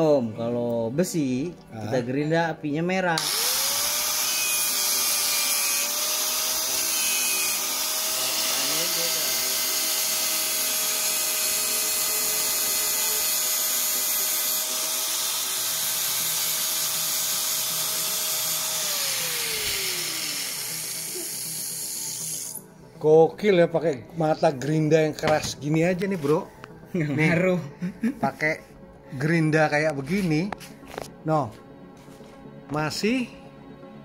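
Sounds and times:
angle grinder grinding metal: 3.2 - 22.6
grinder motor winding down: 3.2 - 22.6.

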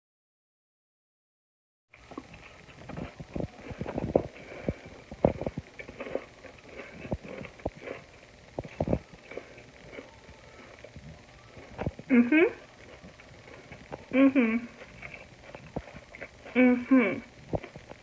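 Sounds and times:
crunching taco shell: 2.0 - 12.1.

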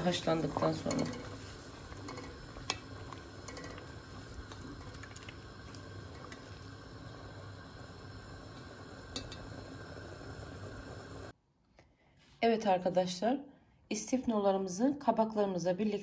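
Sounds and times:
water boiling in a pot: 0.0 - 11.4
spoon stirring: 0.2 - 6.6.

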